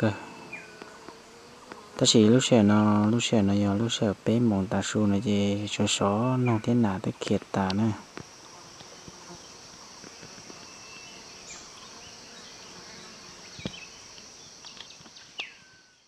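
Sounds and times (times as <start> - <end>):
insects buzzing: 0.0 - 16.0
faint bird chirps: 10.4 - 16.0.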